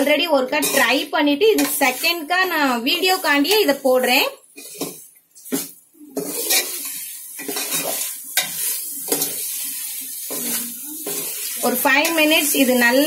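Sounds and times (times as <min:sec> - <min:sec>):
sizzle from hot pot: 0:00.0 - 0:13.0
ladle scraping metal pot: 0:04.6 - 0:09.6.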